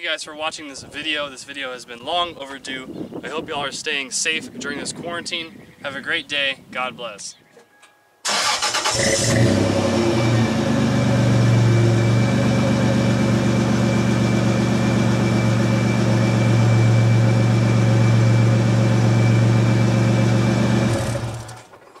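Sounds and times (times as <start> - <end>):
pickup engine idling: 9.2 - 21.6.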